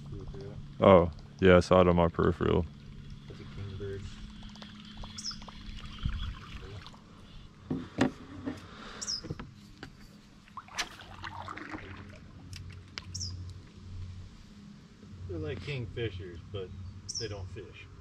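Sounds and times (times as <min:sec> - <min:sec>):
high falling chirp: 0:04.8 - 0:06.2, 0:09.0 - 0:09.4.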